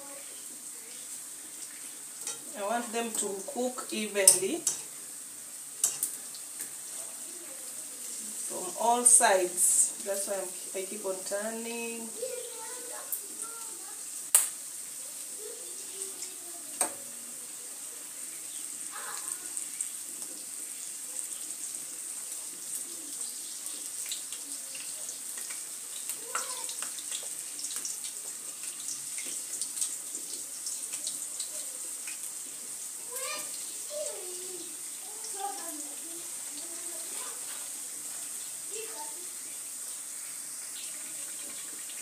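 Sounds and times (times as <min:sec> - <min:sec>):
sausages sizzling in frying pan: 0:00.0 - 0:42.0
fork clicking against pan: 0:04.3 - 0:04.9, 0:05.8 - 0:06.2.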